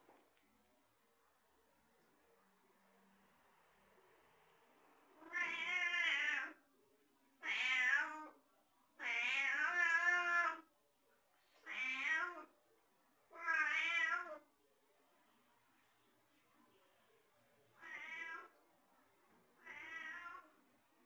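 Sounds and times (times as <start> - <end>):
cat meowing: 5.2 - 6.6, 7.4 - 8.4, 9.0 - 10.6, 11.6 - 12.5, 13.3 - 14.4, 17.8 - 18.5, 19.6 - 20.5.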